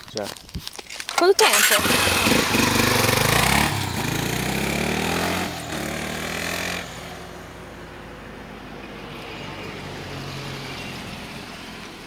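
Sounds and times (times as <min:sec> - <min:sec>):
motorcycle engine accelerating: 0:01.5 - 0:07.8.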